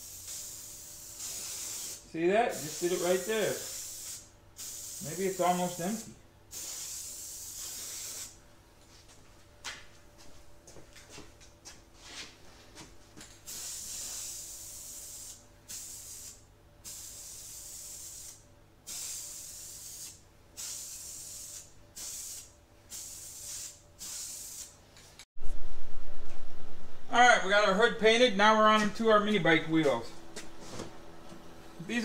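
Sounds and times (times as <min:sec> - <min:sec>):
spray paint can hissing: 0:00.0 - 0:08.4, 0:13.5 - 0:24.8.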